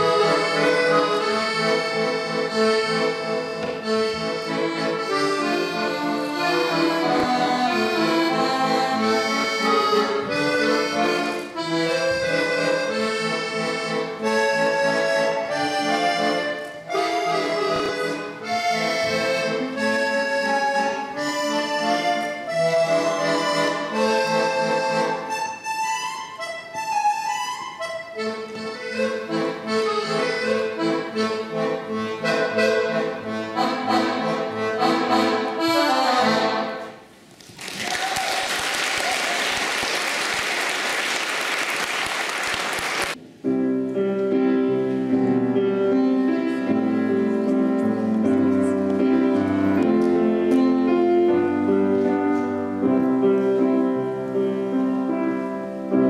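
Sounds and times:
piano accordion melody: 0:00.0 - 0:37.2, 0:40.1 - 0:56.0.

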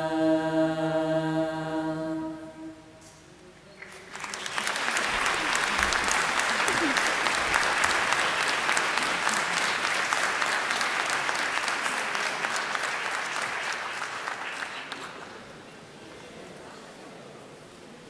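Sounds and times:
audience applauding: 0:03.8 - 0:15.5.

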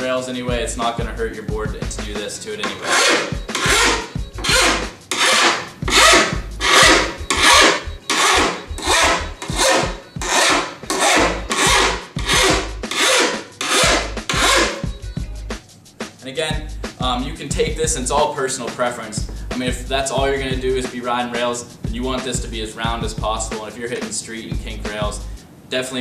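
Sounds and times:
file rasping on steel edge: 0:02.6 - 0:14.9.

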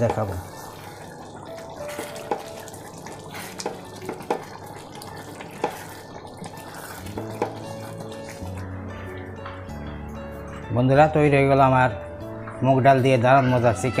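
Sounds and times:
thick curry being stirred: 0:00.0 - 0:08.9
faint background music: 0:00.0 - 0:14.0
spatula knocking against pan: 0:03.6 - 0:04.6, 0:05.6 - 0:05.9, 0:07.2 - 0:07.7.

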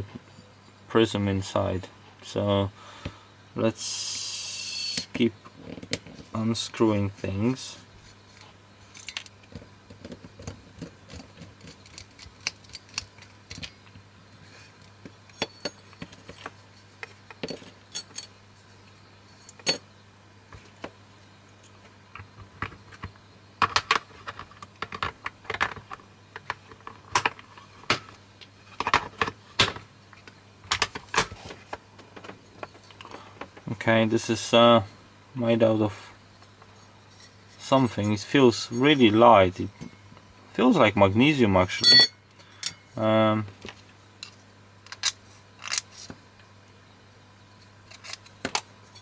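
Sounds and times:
small metal parts clinking: 0:15.3 - 0:18.4, 0:41.8 - 0:42.8.

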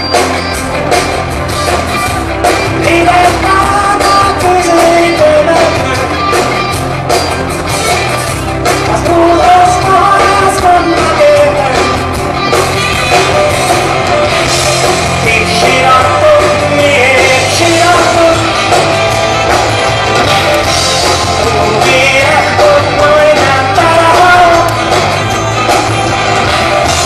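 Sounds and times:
drums: 0:00.0 - 0:27.0
electric guitar: 0:00.0 - 0:27.0
man singing into microphone: 0:02.7 - 0:06.4, 0:08.8 - 0:12.1, 0:15.1 - 0:18.8, 0:21.4 - 0:24.9.

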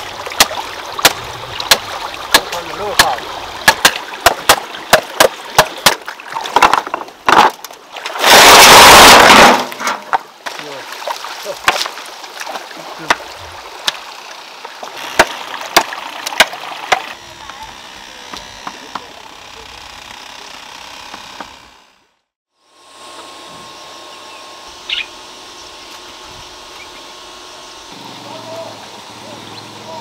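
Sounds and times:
stream water flowing: 0:00.0 - 0:08.5, 0:09.3 - 0:17.2
sharp knocks and cracks: 0:00.4 - 0:10.7, 0:11.6 - 0:14.0, 0:14.8 - 0:17.2.

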